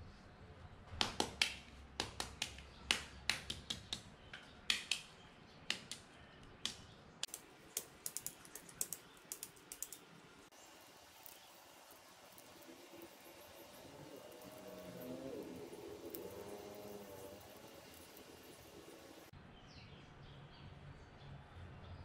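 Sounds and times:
eggshells cracking: 0:06.6 - 0:19.3.

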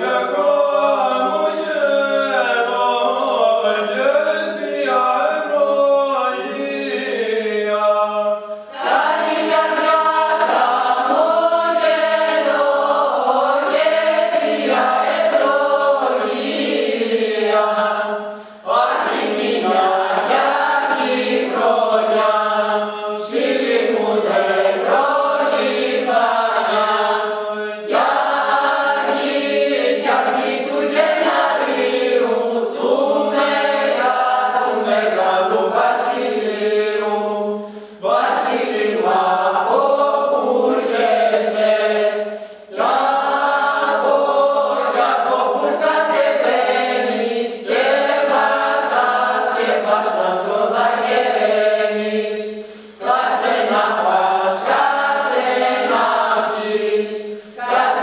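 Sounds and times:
choir singing unaccompanied: 0:00.0 - 0:58.0.

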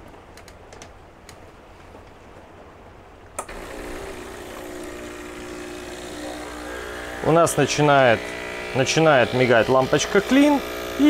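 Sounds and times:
click: 0:00.4 - 0:01.4
espresso machine pump humming: 0:03.4 - 0:11.0.

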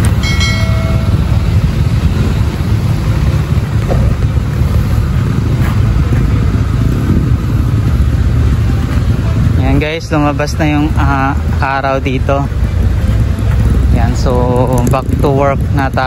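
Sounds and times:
wind buffeting microphone: 0:00.0 - 0:16.0
short ringing chime: 0:00.1 - 0:01.4.

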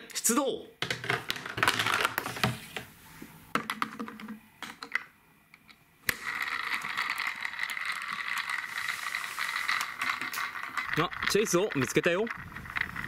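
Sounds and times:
plastic toy parts clicking: 0:04.8 - 0:13.0
toy helicopter whirring: 0:06.1 - 0:13.0.

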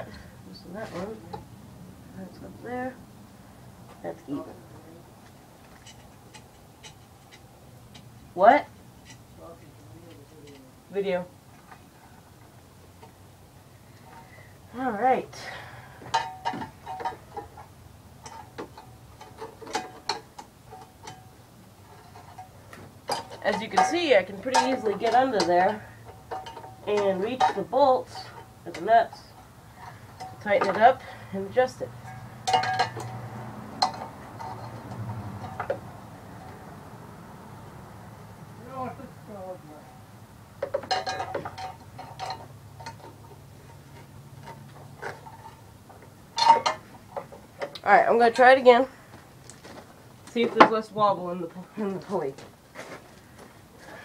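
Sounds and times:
wrench clinking on bolts: 0:22.1 - 0:31.0, 0:32.0 - 0:35.8, 0:40.6 - 0:43.3, 0:46.4 - 0:48.4.

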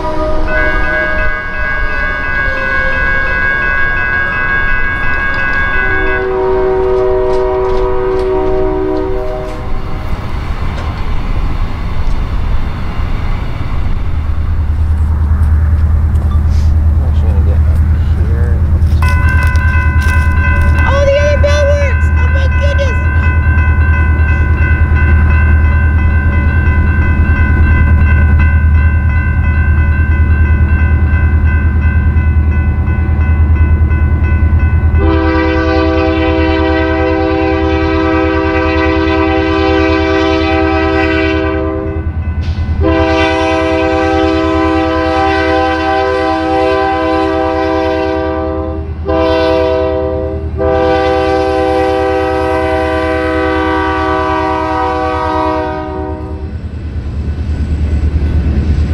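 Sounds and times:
locomotive horn blasts: 0:00.0 - 0:09.7, 0:35.0 - 0:42.1, 0:42.8 - 0:56.5
crossing signal ringing: 0:00.0 - 0:56.6.

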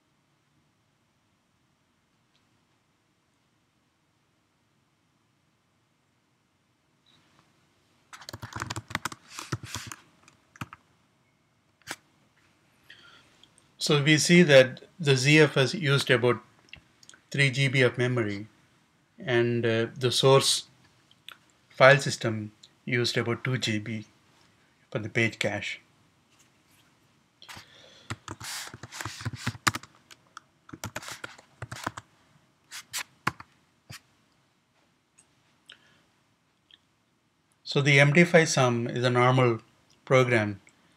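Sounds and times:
typing on computer keyboard: 0:08.2 - 0:10.0, 0:10.6 - 0:10.8, 0:28.1 - 0:32.0, 0:33.3 - 0:33.5.

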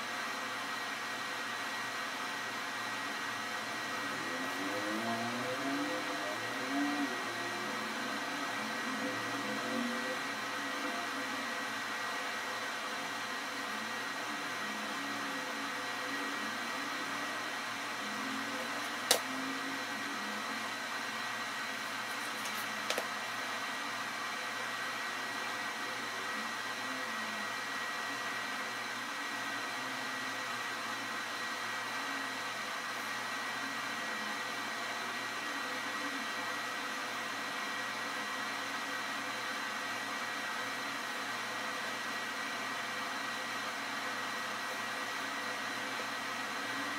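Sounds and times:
faint high whine: 0:00.0 - 0:46.9
machine hum and hiss: 0:00.0 - 0:46.9
sharp click: 0:19.1 - 0:19.3.

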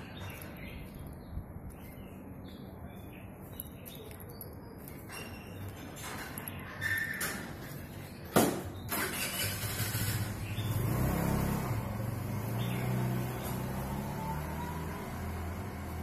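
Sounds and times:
engine running: 0:08.9 - 0:16.0.

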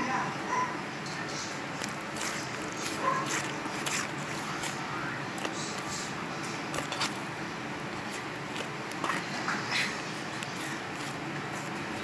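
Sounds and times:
slime squished by hands: 0:01.7 - 0:06.1.

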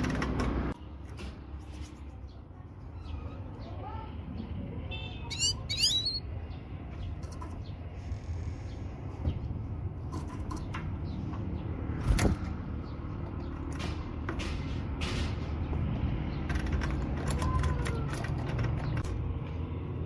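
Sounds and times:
goldfinch chirps: 0:05.3 - 0:06.3.

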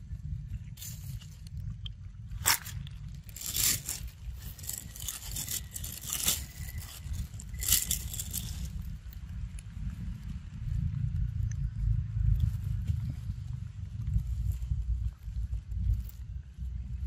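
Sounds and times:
dry leaves crackling and rustling: 0:02.3 - 0:09.1.

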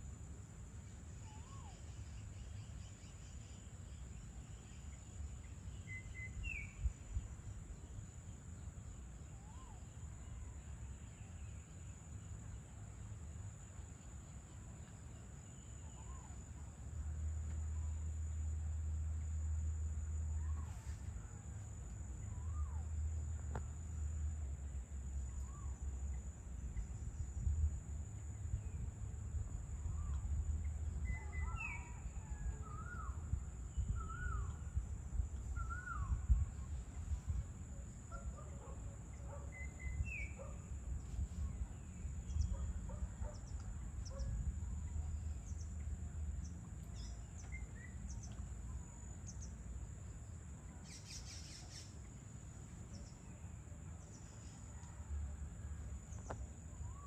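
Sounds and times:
steady low rumble: 0:16.2 - 0:50.8.

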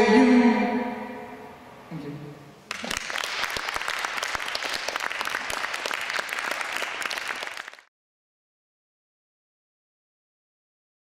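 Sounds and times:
audience applauding: 0:02.7 - 0:07.9.

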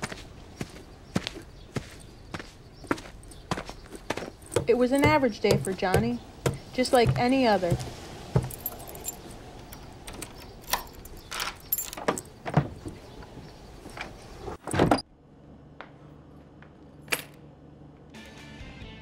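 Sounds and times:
keys jingling: 0:06.8 - 0:13.2.

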